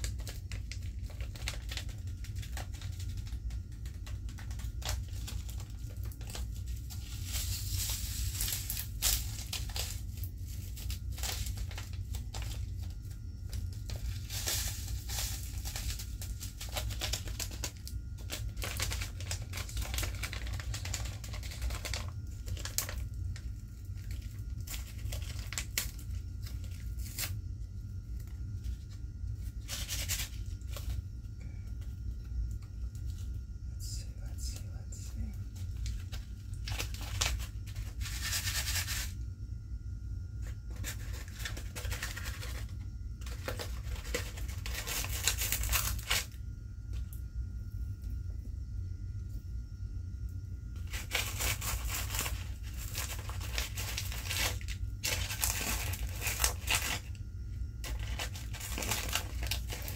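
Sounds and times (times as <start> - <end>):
popping candy crackling: 0.0 - 27.4, 40.6 - 46.3, 50.8 - 57.2, 57.8 - 59.9
steady low hum: 0.0 - 59.9.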